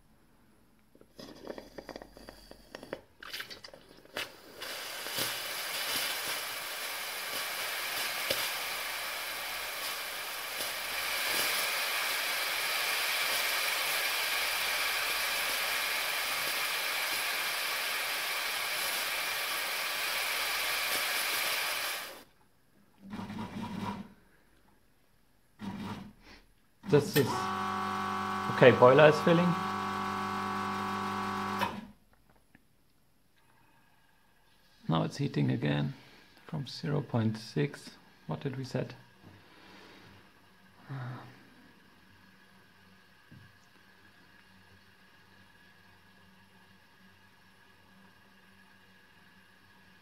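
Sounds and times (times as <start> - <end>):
steam wand hissing: 4.4 - 22.2, 26.9 - 30.2.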